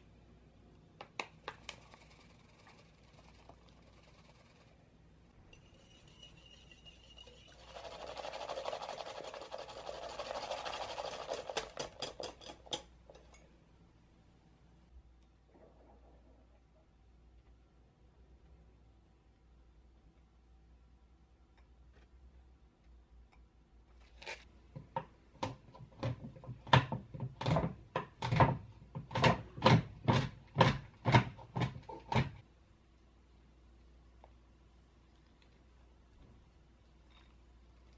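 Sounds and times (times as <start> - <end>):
whisk clinking on glass: 5.5 - 13.4
whisk swishing cream: 5.6 - 12.5.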